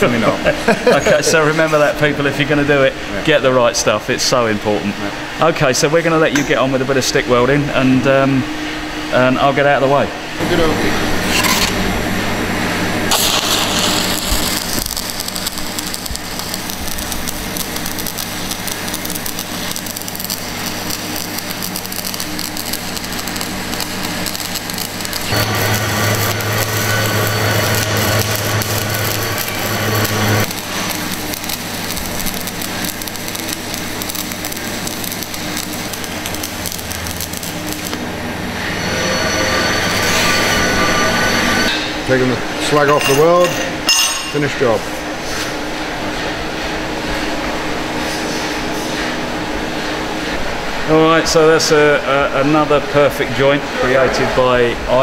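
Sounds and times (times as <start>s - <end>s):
steady low hum: 0.0s - 55.0s
welding arc crackling: 13.0s - 41.6s.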